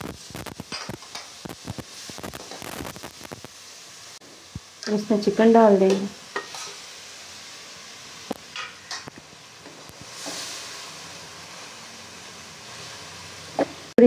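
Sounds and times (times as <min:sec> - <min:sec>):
chicken sizzling in hot oil: 0:00.0 - 0:14.0.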